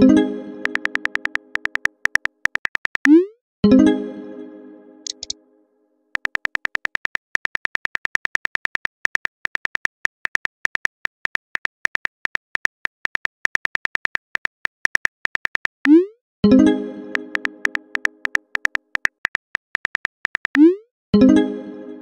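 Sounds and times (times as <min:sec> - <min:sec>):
phone keyboard key clicks: 0:00.6 - 0:03.1, 0:05.1 - 0:05.3, 0:06.2 - 0:15.8, 0:17.1 - 0:20.6.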